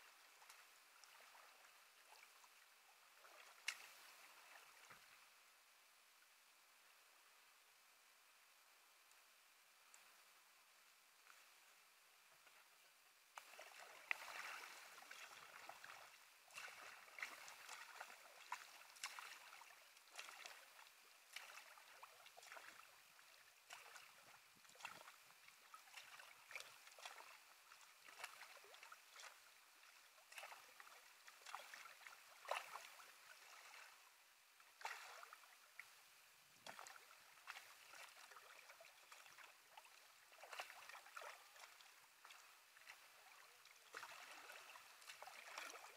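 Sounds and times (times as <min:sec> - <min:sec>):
paddle splashing in water: 0:03.1 - 0:05.1, 0:13.4 - 0:34.0, 0:34.8 - 0:35.9, 0:36.6 - 0:45.9.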